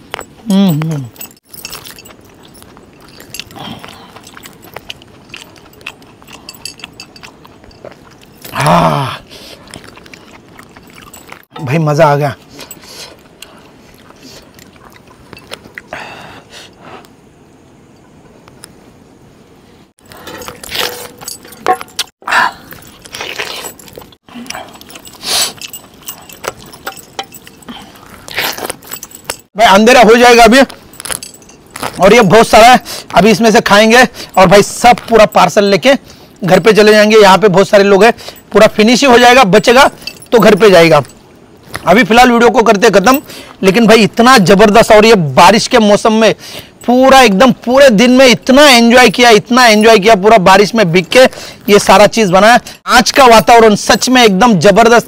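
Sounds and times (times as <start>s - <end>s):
small clicks and metal clinks: 0.0s - 8.7s, 20.0s - 29.5s, 30.5s - 36.9s, 38.0s - 42.0s
chewing and mouth smacking: 0.1s - 11.5s, 12.4s - 15.9s, 20.1s - 29.5s.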